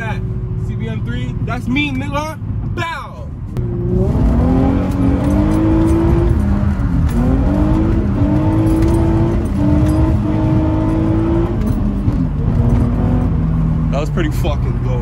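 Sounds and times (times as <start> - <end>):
car engine accelerating: 3.5 - 15.0.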